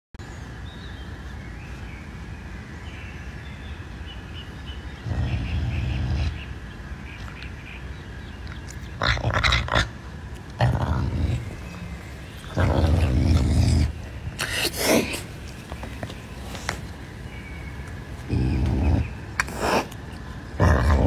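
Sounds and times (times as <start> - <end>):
caracal growling: 5.0 - 6.5, 8.4 - 15.7, 18.2 - 21.0.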